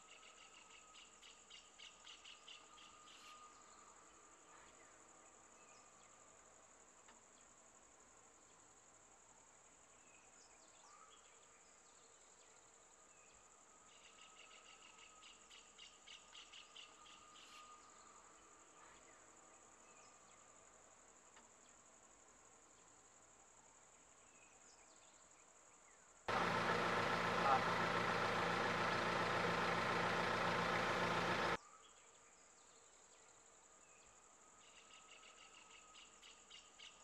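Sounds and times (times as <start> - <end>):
rapid pulsed insect call: 0.0 - 37.0
insects droning: 0.1 - 37.0
vehicle engine: 26.3 - 31.6.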